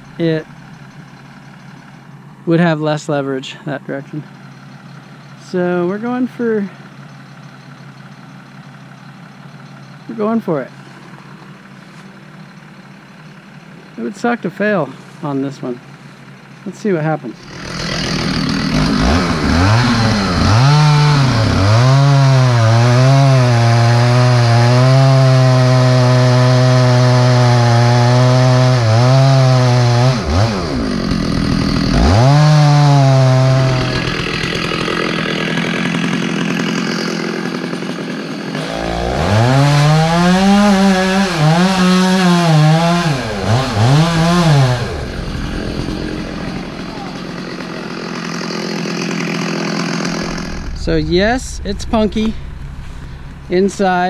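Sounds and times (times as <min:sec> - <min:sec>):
chainsaw cutting wood: 0:17.4 - 0:51.0.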